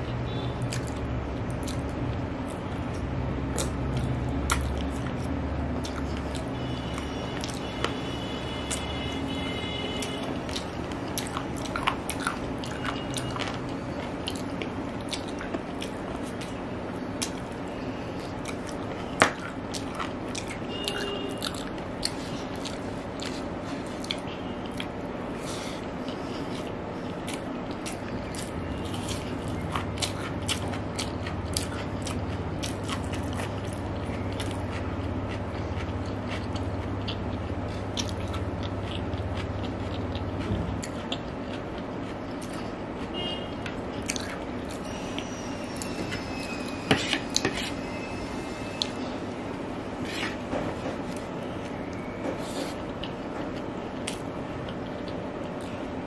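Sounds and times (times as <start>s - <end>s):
wet chewing and mouth clicks: 0.3s - 46.0s, 51.1s - 55.8s.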